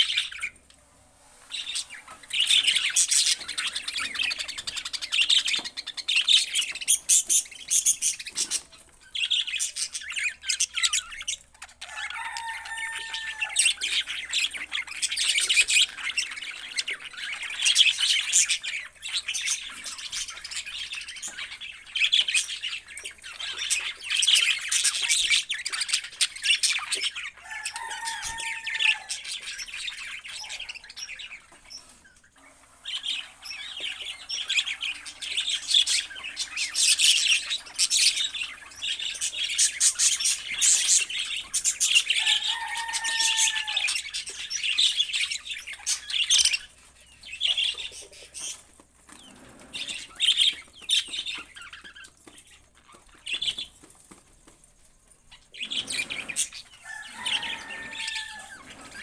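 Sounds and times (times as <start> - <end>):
budgerigars chattering and chirping: 0.0 - 0.6, 1.5 - 53.7, 55.3 - 59.0
loud squawking calls: 41.9 - 44.2, 55.5 - 59.0.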